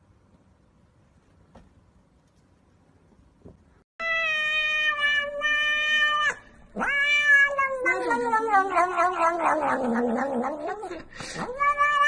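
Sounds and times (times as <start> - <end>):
cat meowing: 4.0 - 12.0.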